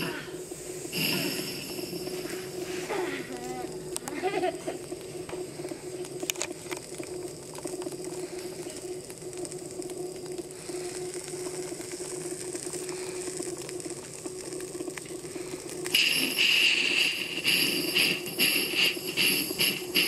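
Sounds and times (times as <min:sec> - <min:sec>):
steady low hum: 0:00.0 - 0:20.0
model steam locomotive ticking: 0:15.9 - 0:20.0.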